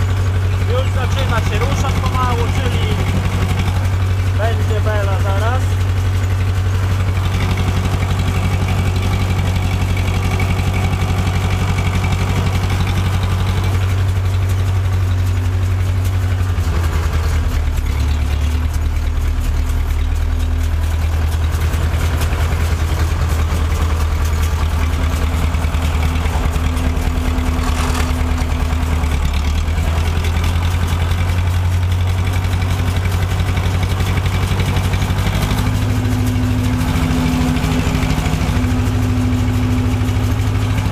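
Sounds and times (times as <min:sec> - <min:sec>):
round baler running: 0:00.0 - 0:40.9
tractor engine running: 0:00.0 - 0:40.9.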